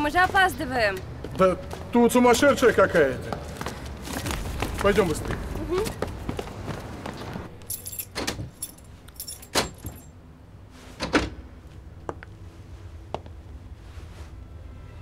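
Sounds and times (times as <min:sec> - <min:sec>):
keys jangling: 0:07.6 - 0:10.1.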